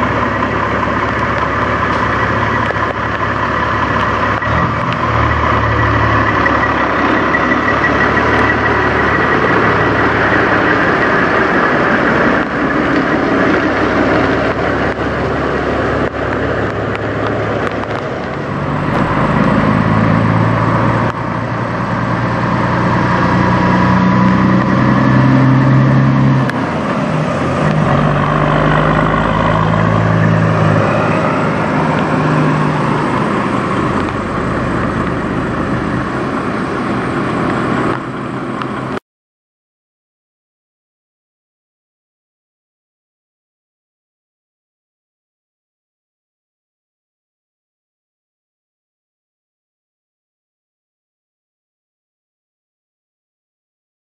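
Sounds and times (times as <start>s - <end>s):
diesel truck engines running: 0.0s - 39.0s
truck pulling away with gear change: 0.0s - 39.0s.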